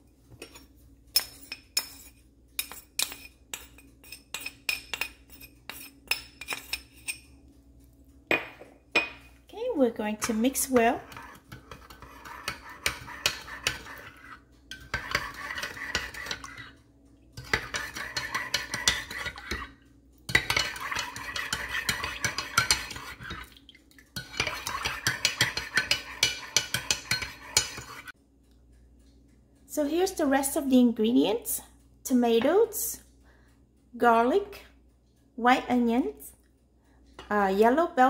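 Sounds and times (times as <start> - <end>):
metal spoon clinking in mug: 17.4 - 19.7, 20.3 - 23.4.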